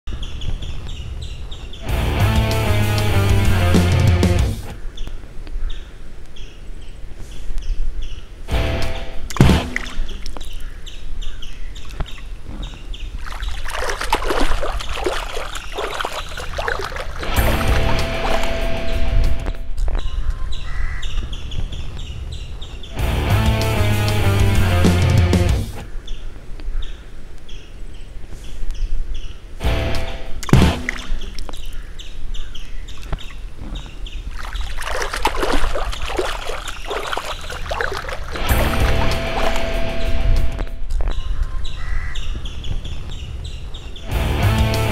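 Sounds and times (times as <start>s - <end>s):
feet kicking and splashing water: 9.3s - 10.6s, 13.1s - 19.5s, 30.4s - 31.8s, 34.2s - 40.0s
splash into pond water: 9.3s - 10.6s, 13.2s - 19.5s, 30.4s - 31.7s, 34.3s - 39.9s.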